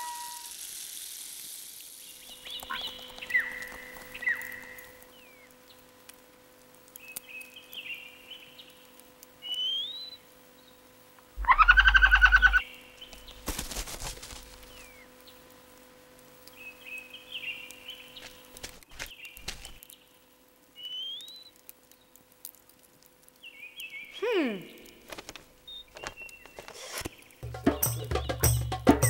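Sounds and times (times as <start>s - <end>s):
rising whistle: 0.0s - 0.5s
cartoon bird chirps: 11.4s - 12.6s
brief rustle: 13.4s - 14.9s, 25.1s - 27.2s.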